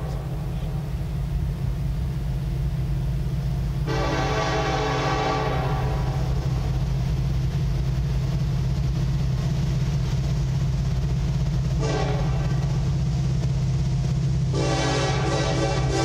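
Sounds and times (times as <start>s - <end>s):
steady low rumble: 0.0s - 16.0s
locomotive air horn: 3.8s - 6.3s, 11.8s - 12.6s, 14.5s - 16.0s.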